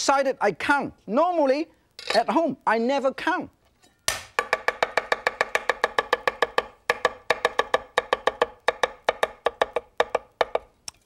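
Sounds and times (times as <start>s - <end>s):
cleaver knocking on cutting board: 4.4s - 10.7s.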